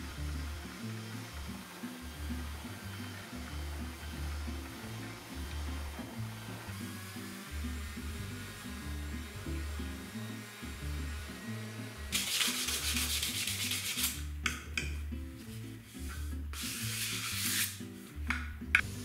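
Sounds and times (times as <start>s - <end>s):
background music: 0.0s - 19.0s
scratchy rubbing on wood: 12.1s - 14.3s, 15.4s - 17.8s.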